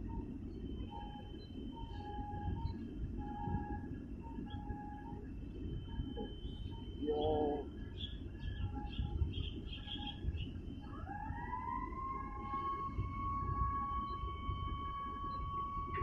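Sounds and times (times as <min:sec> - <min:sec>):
wind: 0:00.0 - 0:16.0
small birds chirping: 0:06.1 - 0:10.8
siren winding up: 0:10.8 - 0:16.0.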